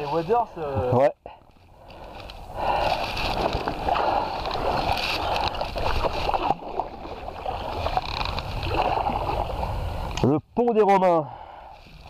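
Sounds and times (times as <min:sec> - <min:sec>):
paddle strokes splashing: 0:02.0 - 0:09.8
water gurgling against hull: 0:02.6 - 0:10.2.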